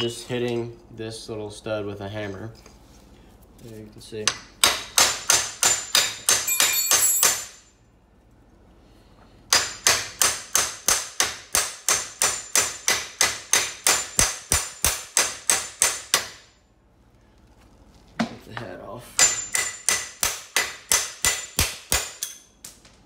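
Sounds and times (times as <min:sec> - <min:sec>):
hammer striking metal: 0:04.3 - 0:07.7, 0:09.5 - 0:16.5, 0:19.2 - 0:22.5.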